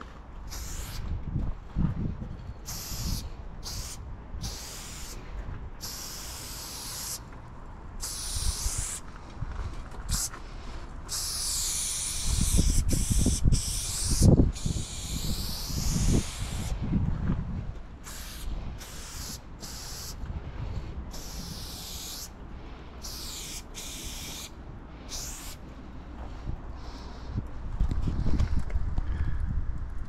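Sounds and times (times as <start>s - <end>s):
low rumble on microphone: 0.0s - 2.7s, 14.2s - 18.8s, 25.8s - 30.0s
spray paint can hissing: 0.5s - 1.0s, 2.6s - 5.2s, 5.8s - 7.3s, 8.0s - 9.1s, 10.1s - 10.3s, 11.1s - 16.8s, 18.0s - 20.2s, 21.1s - 22.3s, 23.0s - 24.5s, 25.1s - 25.6s.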